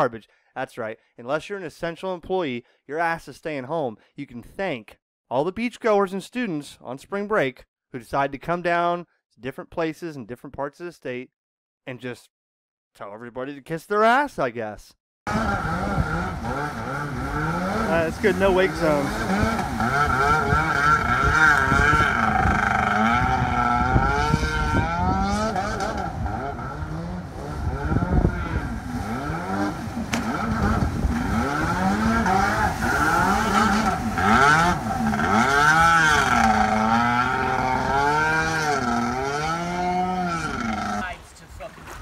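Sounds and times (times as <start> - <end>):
jet ski engine revving: 15.3 - 41.1
water spraying: 15.4 - 22.0, 28.7 - 37.7.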